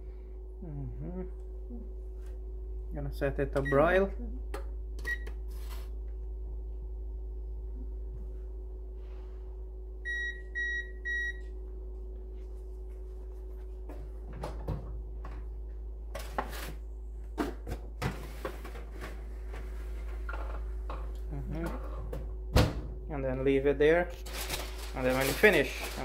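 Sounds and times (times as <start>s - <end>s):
faint steady hum: 0.0s - 26.0s
oven control panel beeping: 3.6s - 4.0s, 5.0s - 5.4s, 10.1s - 11.4s
foil rustling: 24.2s - 26.0s.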